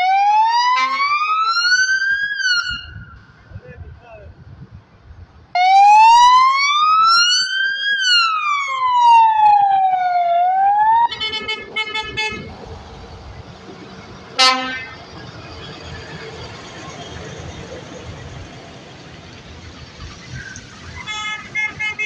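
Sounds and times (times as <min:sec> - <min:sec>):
police car siren wailing: 0:00.0 - 0:03.0, 0:05.6 - 0:11.5
horn blast: 0:14.4 - 0:15.0.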